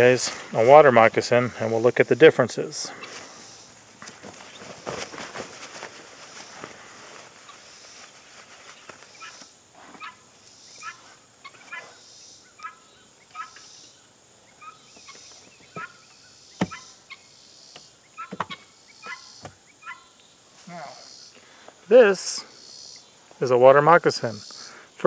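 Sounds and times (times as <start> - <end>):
fowl calling: 2.8 - 5.2, 9.1 - 23.1, 24.2 - 24.9.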